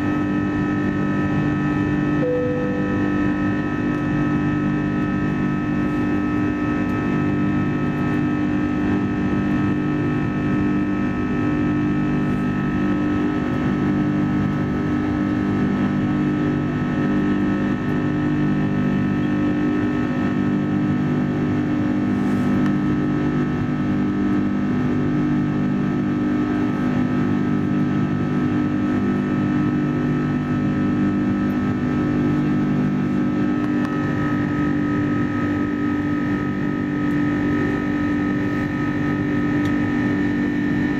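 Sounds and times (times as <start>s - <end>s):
jet engine hum in cabin: 0.0s - 40.9s
thin whining tones: 2.2s - 3.4s.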